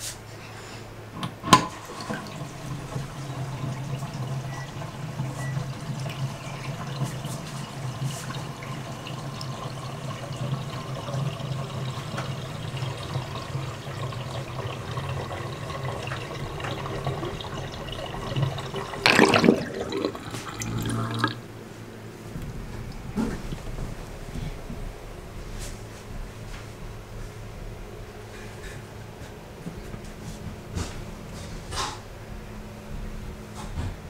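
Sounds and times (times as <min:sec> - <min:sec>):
drain gurgle: 0:01.2 - 0:21.5, 0:22.3 - 0:24.7
water draining from sink: 0:01.2 - 0:21.5, 0:22.4 - 0:24.4.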